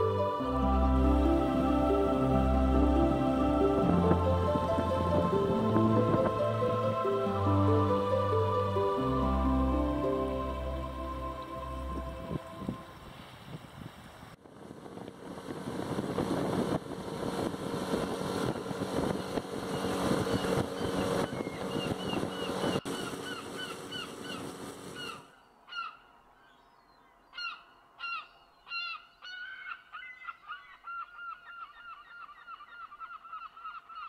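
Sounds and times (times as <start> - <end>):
boat running on water: 0.0 - 13.0, 14.4 - 25.3
birds honking: 17.8 - 25.9.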